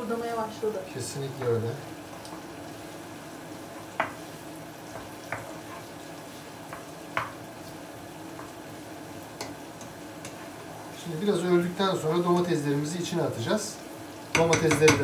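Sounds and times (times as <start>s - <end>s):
onions sizzling in a frying pan: 0.0s - 15.0s
utensil knocking against pan: 14.3s - 15.0s.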